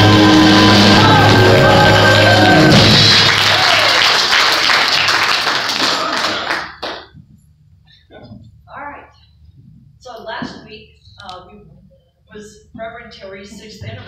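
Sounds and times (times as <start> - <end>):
gospel singers with band: 0.0 - 3.1
congregation applause: 0.0 - 7.1.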